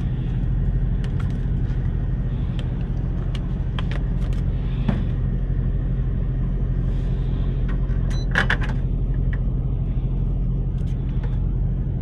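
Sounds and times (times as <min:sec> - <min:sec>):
diesel engine rumbling: 0:00.0 - 0:12.0
clicks and rustles of handling: 0:00.3 - 0:05.1.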